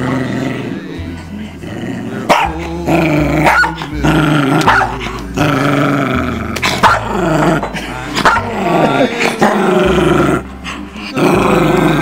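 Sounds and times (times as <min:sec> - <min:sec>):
dog growling: 0:00.0 - 0:12.0
dog barking: 0:02.3 - 0:02.6, 0:03.4 - 0:03.9, 0:04.6 - 0:05.0, 0:06.8 - 0:07.1, 0:08.2 - 0:08.5.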